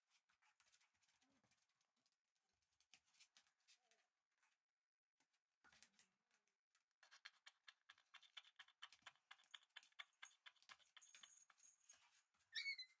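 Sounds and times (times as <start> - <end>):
puppy claws clicking on hard floor: 7.0 - 12.1.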